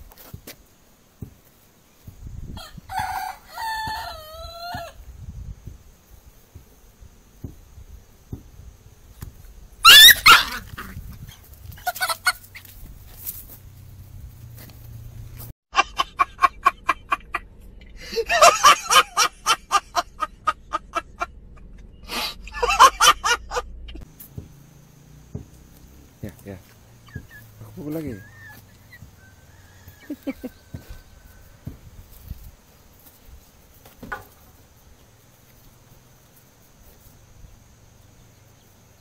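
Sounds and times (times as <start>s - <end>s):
chicken squawking: 9.8s - 12.7s, 27.0s - 31.0s.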